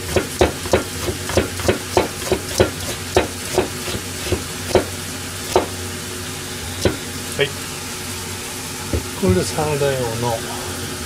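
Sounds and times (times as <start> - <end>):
knife chopping on plastic board: 0.0 - 4.9, 5.5 - 5.7, 6.8 - 7.0
pan sizzling: 0.0 - 9.9.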